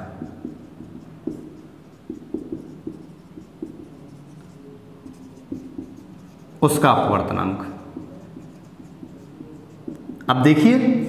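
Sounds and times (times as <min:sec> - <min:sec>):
marker writing on whiteboard: 0:00.0 - 0:11.0.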